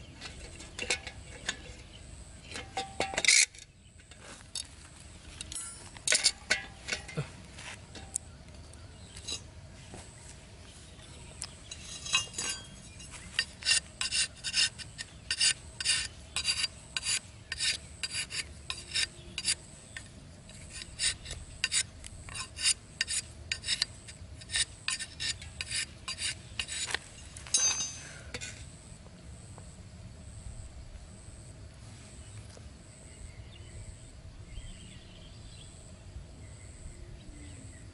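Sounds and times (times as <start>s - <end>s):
knife scraping bamboo stick: 11.4s - 27.2s.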